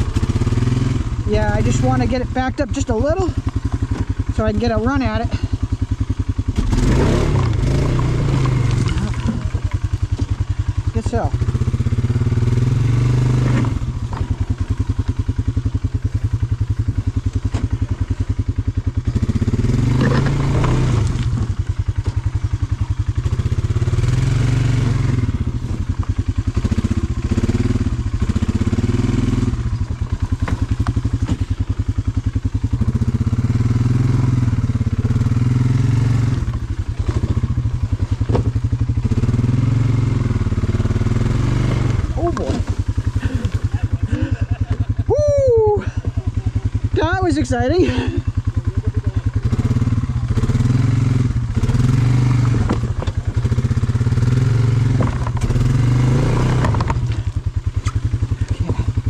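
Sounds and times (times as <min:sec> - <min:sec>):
atv engine revving under load: 0:00.0 - 0:59.0.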